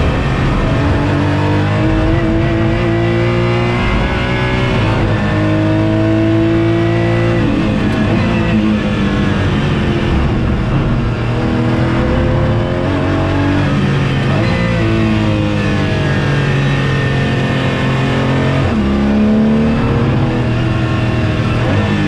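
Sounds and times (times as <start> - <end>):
race car engine at speed: 0.0 - 22.0.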